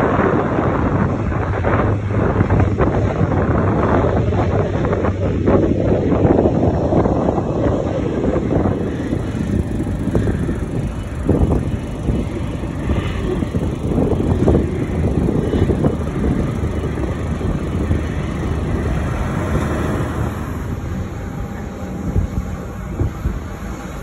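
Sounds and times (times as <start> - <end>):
jet airliners rumbling: 0.0 - 24.0
wind buffeting microphone: 0.0 - 24.0.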